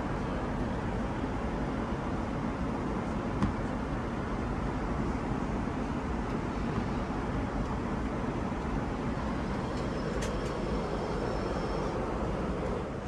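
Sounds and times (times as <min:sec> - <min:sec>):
airplane cabin noise: 0:00.1 - 0:13.0
faint high whine: 0:08.8 - 0:13.0.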